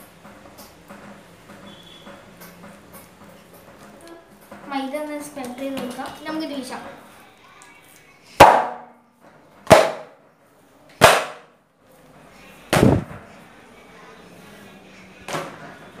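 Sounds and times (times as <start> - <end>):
dough slapping on a countertop: 11.0 - 11.6.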